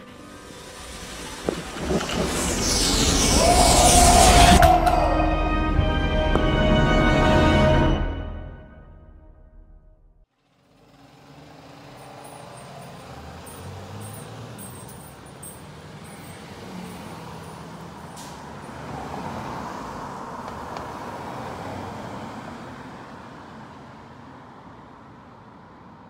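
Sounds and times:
car driving past: 0.0 - 6.7.

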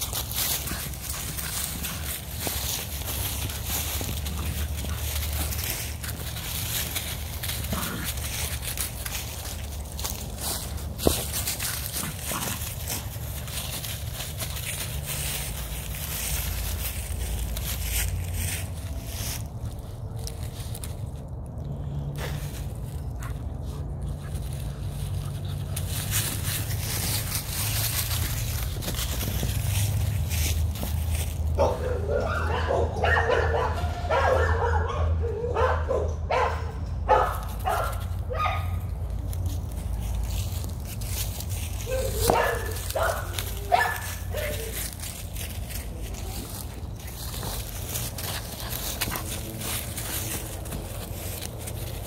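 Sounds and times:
dry leaves crunching: 0.0 - 34.8, 37.1 - 52.0
puppy yipping and barking: 31.6 - 38.8, 41.8 - 44.9
steady low rumble: 36.7 - 52.0.

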